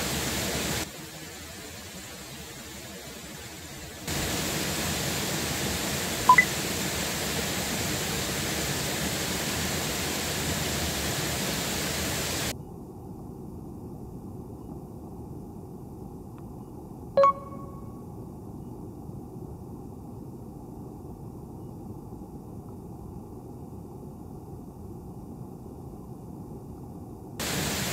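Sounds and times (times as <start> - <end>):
faint dull water hiss: 0.0 - 12.6, 19.2 - 27.9
water rushing over a weir: 4.0 - 12.5, 27.4 - 27.9
brief high ping: 17.2 - 17.9.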